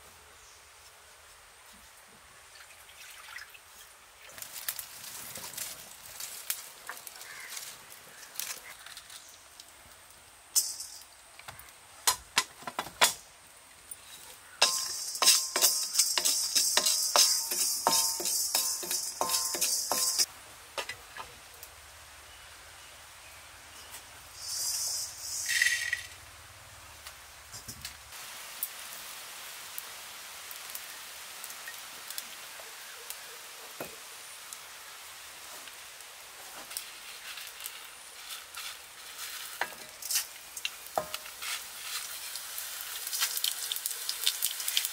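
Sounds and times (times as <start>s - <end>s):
music with quick percussion beat: 14.6s - 20.3s
oil hissing in a wok: 14.6s - 20.3s, 24.3s - 26.1s, 33.8s - 44.9s
crackles and pops: 39.4s - 44.9s.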